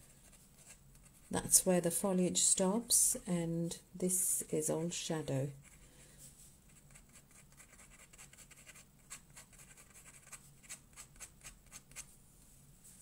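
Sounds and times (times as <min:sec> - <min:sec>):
pen scratching on paper: 0:06.7 - 0:12.1.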